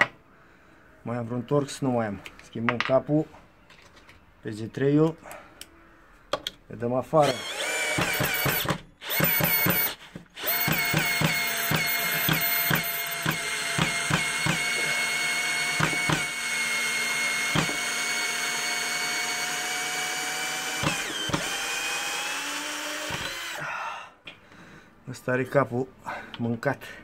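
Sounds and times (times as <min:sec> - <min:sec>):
cordless drill motor whine: 0:07.2 - 0:23.6
sharp drill clicks: 0:07.2 - 0:23.6.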